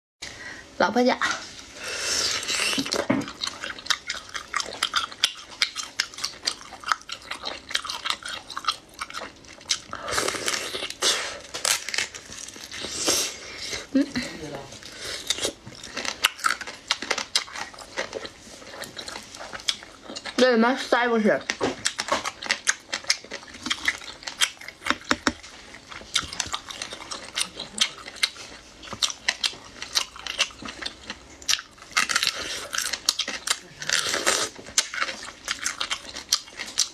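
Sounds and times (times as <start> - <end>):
wet chewing and lip-smacking: 2.3 - 13.2, 14.8 - 20.4, 21.4 - 36.9.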